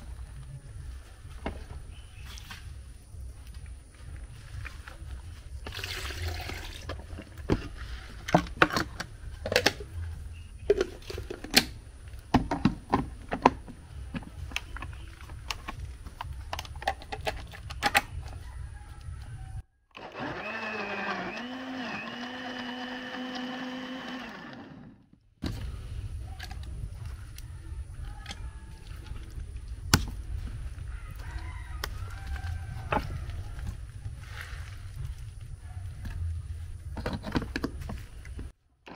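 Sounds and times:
electric blender running: 20.0s - 25.0s.

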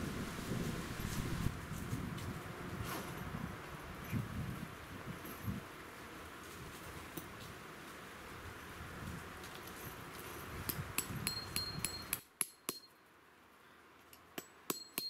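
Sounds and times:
hammer striking tent peg: 10.7s - 12.9s.

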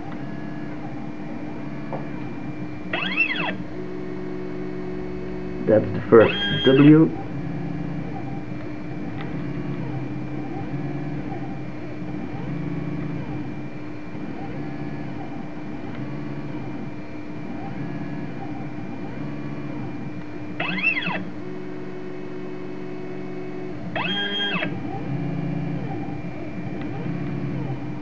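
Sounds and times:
stepper motors whining: 0.0s - 4.4s, 5.7s - 13.5s, 17.7s - 21.9s, 23.5s - 28.0s
louder higher whine: 0.0s - 11.3s, 20.4s - 28.0s.

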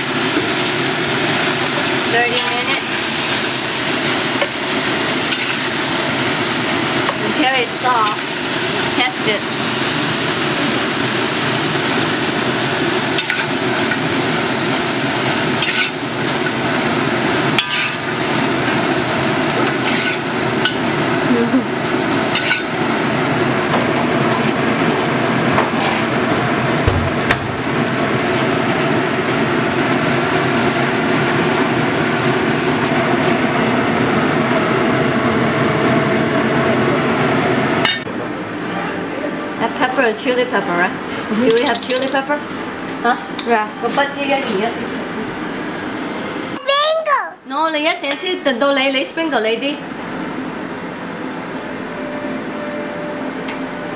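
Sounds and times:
pork sizzling in hot oil: 0.0s - 35.1s
utensil clicking against pan: 41.5s - 42.2s.

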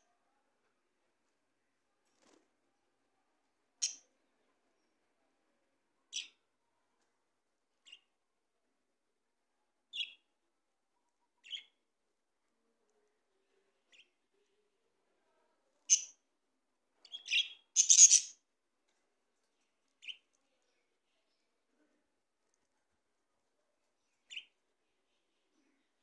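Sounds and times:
budgerigars chirping: 17.1s - 18.3s.

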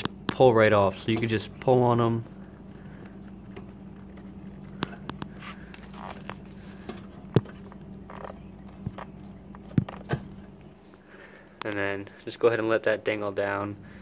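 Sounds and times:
faint steady hum: 0.0s - 14.0s
wire connectors clicking: 2.4s - 10.7s.

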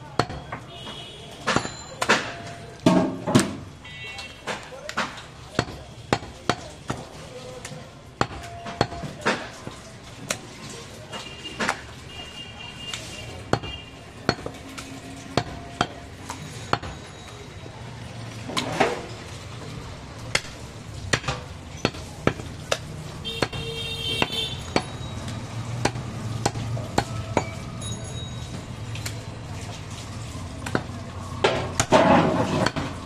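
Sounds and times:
cleaver chopping meat on wood: 0.1s - 0.7s, 1.4s - 3.6s, 4.4s - 7.1s, 8.2s - 10.4s, 13.5s - 14.6s, 15.3s - 16.1s, 20.3s - 25.0s, 25.7s - 27.6s, 30.6s - 33.0s.

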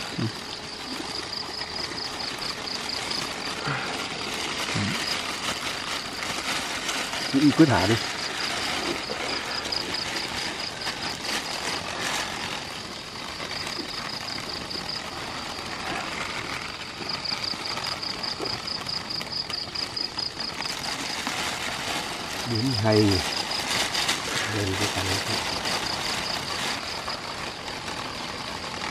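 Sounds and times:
insect trilling buzz: 0.0s - 21.6s
plastic bag crinkling: 0.0s - 28.9s.

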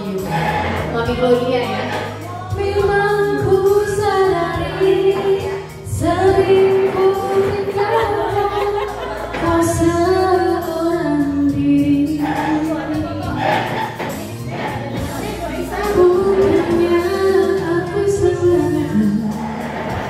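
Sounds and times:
backing track music: 0.0s - 20.0s
woman singing karaoke: 0.0s - 20.0s.

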